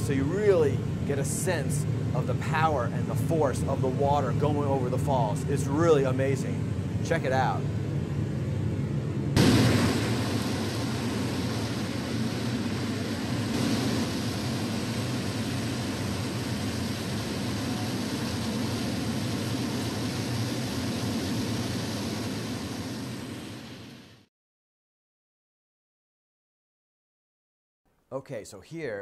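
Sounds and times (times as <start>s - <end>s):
waterfall roaring: 9.4s - 23.9s.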